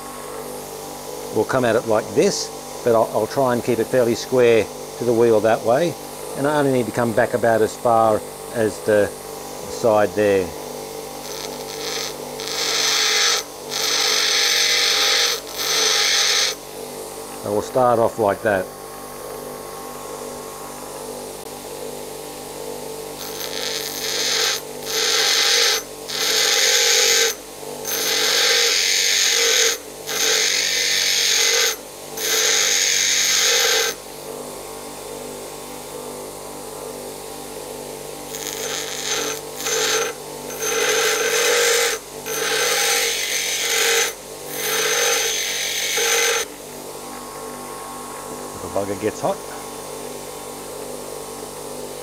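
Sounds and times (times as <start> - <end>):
tool bit grinding hiss: 0.0 - 18.6, 23.2 - 34.0, 38.2 - 47.2
bench grinder running: 0.0 - 52.0.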